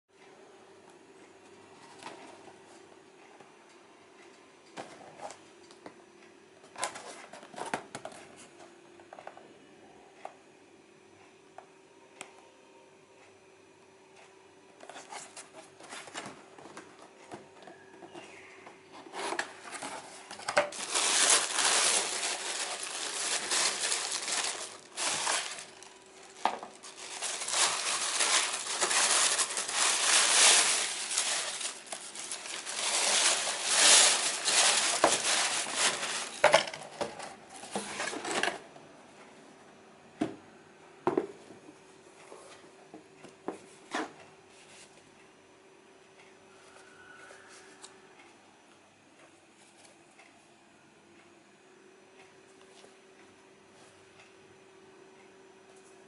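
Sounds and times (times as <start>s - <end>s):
tissue paper crinkling: 19.7s - 36.7s.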